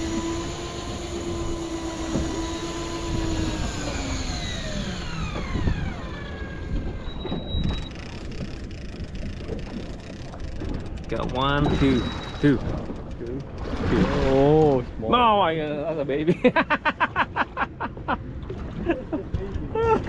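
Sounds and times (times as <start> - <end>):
fishing reel motor whining: 0.0 - 13.7
short high beep: 11.6 - 12.6.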